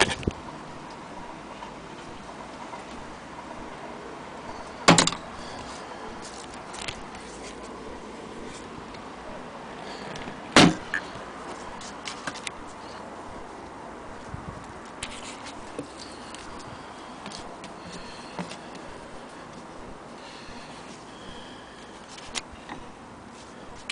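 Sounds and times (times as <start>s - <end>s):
loud sharp knocks: 4.9s - 5.2s, 10.6s - 10.9s.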